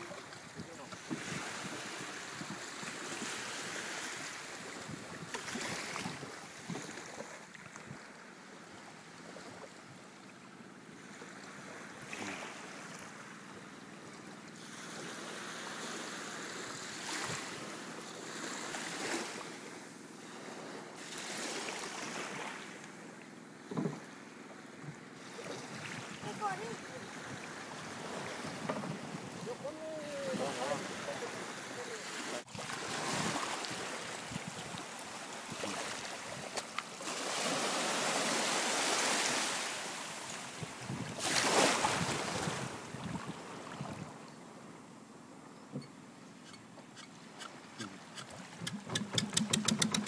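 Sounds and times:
small waves washing on sand: 0:00.0 - 0:23.2, 0:23.9 - 0:44.8
wind buffeting microphone: 0:00.4 - 0:02.9, 0:25.6 - 0:30.8, 0:40.5 - 0:44.2.

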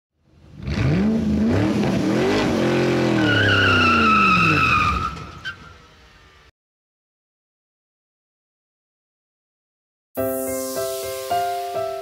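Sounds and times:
car engine revving: 0:00.5 - 0:04.8
tyres squealing: 0:03.1 - 0:05.7.

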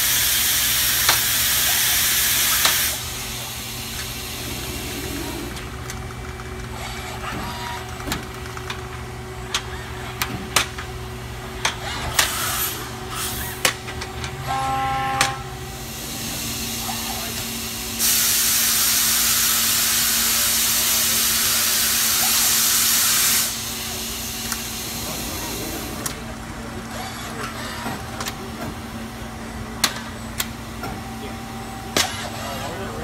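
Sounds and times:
robotic machining cell humming: 0:00.2 - 0:10.3.

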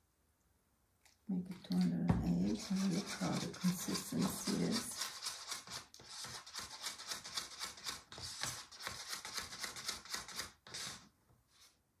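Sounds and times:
stick scraping inside paper cup: 0:01.4 - 0:11.8.

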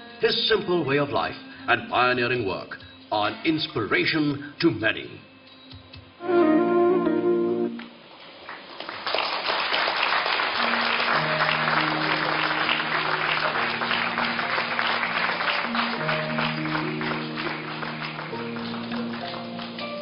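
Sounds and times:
music of long held notes: 0:06.2 - 0:08.0, 0:10.6 - 0:20.0
audience applause: 0:08.4 - 0:20.0.

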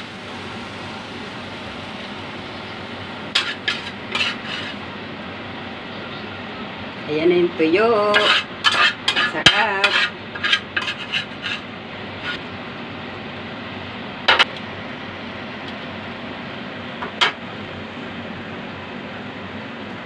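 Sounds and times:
utensils clinking on a plate: 0:08.2 - 0:11.6.

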